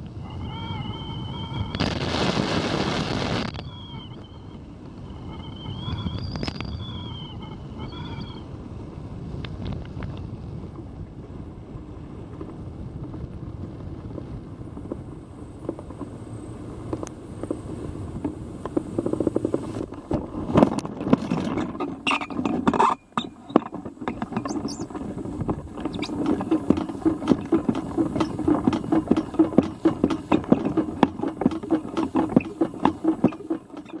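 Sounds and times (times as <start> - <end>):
knocks and scrapes of landing: 18.2 - 34.0
metal frame rattling: 20.5 - 34.0.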